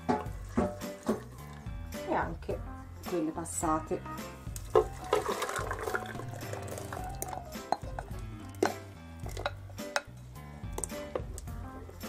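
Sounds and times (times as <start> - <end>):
background music sustained notes: 0.0 - 12.0
thick puree poured and scraped: 4.6 - 8.5
spoon knocking against bowl: 7.1 - 10.1.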